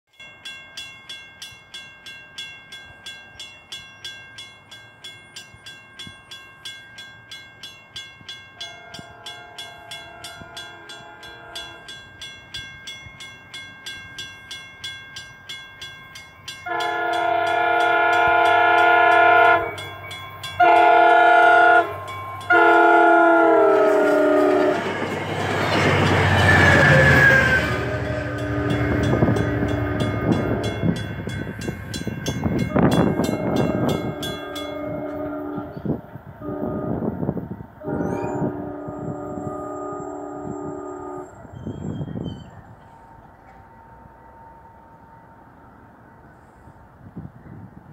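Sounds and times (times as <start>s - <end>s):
crossing bell ringing: 0.1s - 46.4s
passing train rumble: 0.4s - 47.9s
train horn: 8.6s - 11.9s, 16.6s - 19.8s, 20.6s - 25.0s, 26.2s - 31.0s, 32.7s - 41.8s
high wheel squeal: 25.7s - 30.4s, 37.9s - 43.7s.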